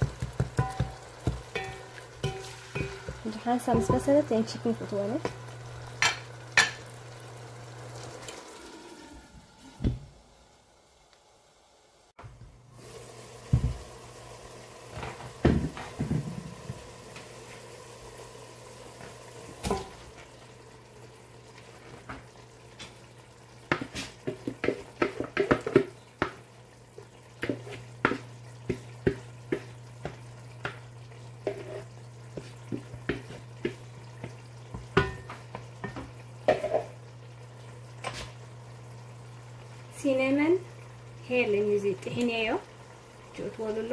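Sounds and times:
pot and utensils clicking: 0.0 - 4.1
clatter tipped into pot: 19.6 - 20.0, 35.0 - 36.9.

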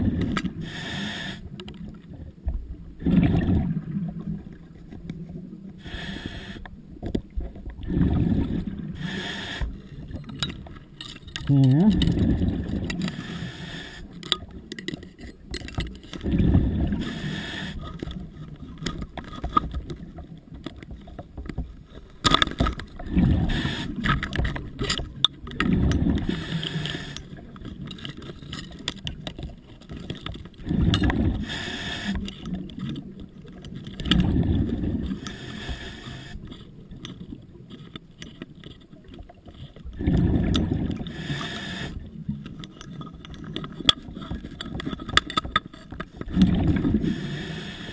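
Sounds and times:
exhaled bubbles rumbling: 0.0 - 0.8, 1.5 - 5.8, 6.8 - 13.4, 15.6 - 37.8, 39.4 - 41.3, 45.9 - 47.5
diver breathing through regulator: 0.0 - 1.6, 5.8 - 6.7, 7.9 - 10.0, 12.0 - 14.4, 16.3 - 18.2, 23.0 - 24.6, 25.8 - 27.6, 30.6 - 32.5, 34.2 - 36.7, 40.1 - 42.1, 46.3 - 47.9.

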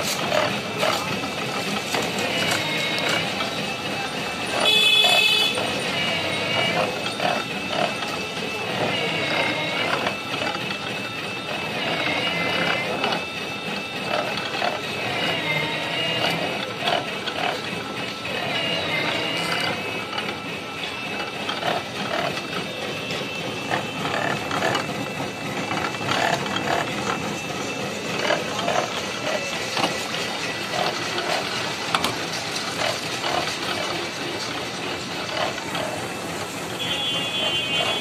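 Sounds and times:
juice crusher rollers rattling: 0.0 - 38.0.

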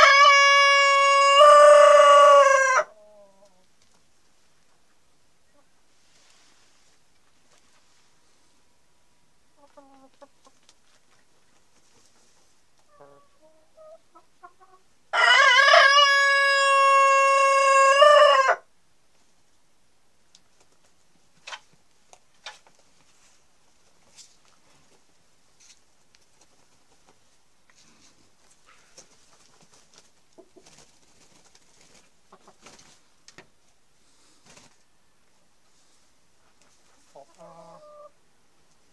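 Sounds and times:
rooster crowing: 0.0 - 2.9, 15.1 - 18.7
hen clucking: 9.5 - 10.6, 12.8 - 14.9, 37.0 - 38.2.

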